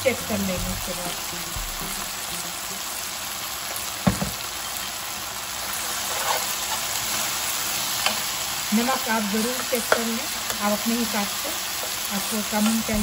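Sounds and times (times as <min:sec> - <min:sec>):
food sizzling in a frying pan: 0:00.0 - 0:13.0
knock: 0:04.1 - 0:04.4.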